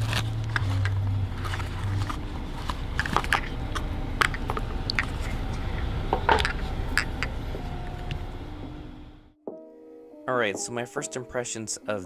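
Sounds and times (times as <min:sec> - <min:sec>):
plastic connectors and bulbs rattling: 0:00.0 - 0:07.4
low background hum: 0:00.0 - 0:09.4.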